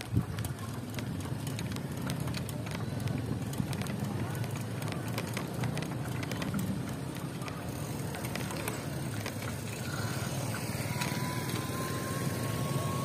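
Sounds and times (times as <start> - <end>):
small clicks and rattles: 0.0 - 13.0
wind and road rumble: 0.0 - 13.0.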